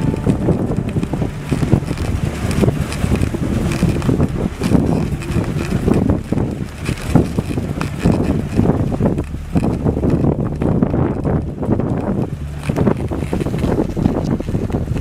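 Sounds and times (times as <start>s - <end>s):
sled rumbling on snow: 0.0s - 15.0s
wind buffeting microphone: 0.0s - 15.0s.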